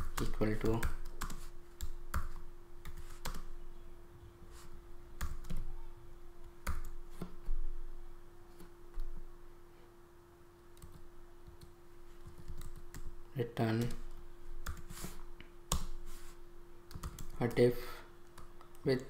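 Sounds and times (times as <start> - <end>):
faint steady hum: 0.0 - 19.0
keyboard typing clicks: 16.9 - 17.4.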